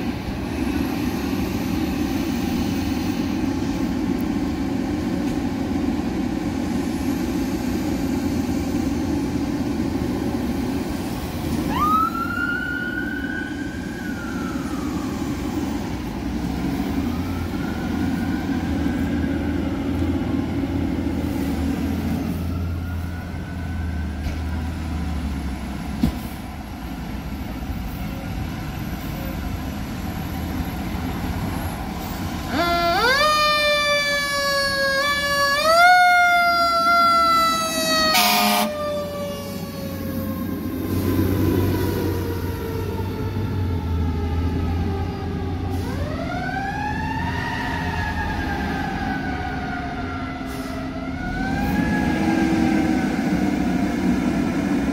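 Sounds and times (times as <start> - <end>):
siren whoops: 11.6 - 20.0, 32.5 - 41.2, 42.0 - 53.5
electronic siren wailing: 32.5 - 41.0.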